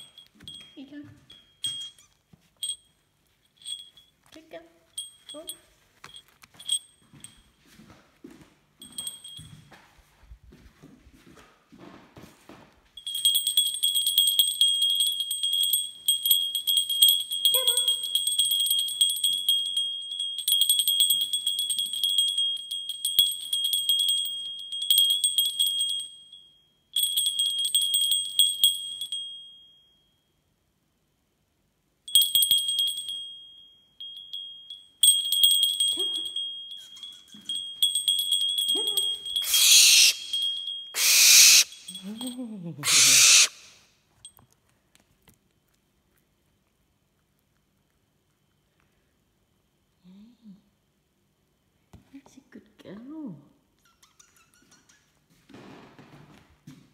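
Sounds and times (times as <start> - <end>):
small bell ringing and jingling: 0.0 - 10.6, 12.9 - 30.5, 32.0 - 43.5
owl hissing screech: 39.4 - 40.3, 41.0 - 41.8, 42.8 - 43.8.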